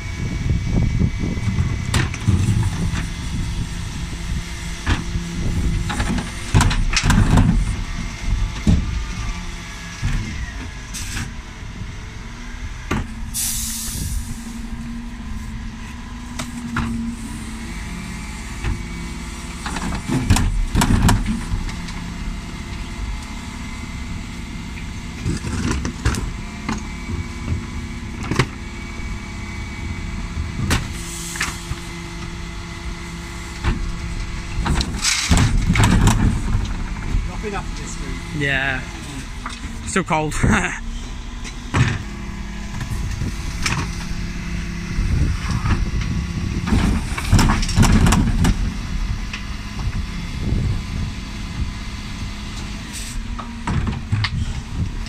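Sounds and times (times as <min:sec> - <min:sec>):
refuse truck engine running: 0:00.0 - 0:55.0
bins and lift knocking and rattling: 0:04.8 - 0:07.8, 0:33.5 - 0:37.8, 0:45.5 - 0:48.8
air hiss bursts: 0:13.4 - 0:14.6.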